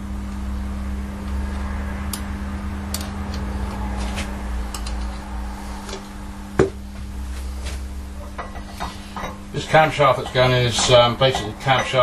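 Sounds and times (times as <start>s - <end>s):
steady low hum: 0.0s - 12.0s
metal clunk: 10.0s - 12.0s.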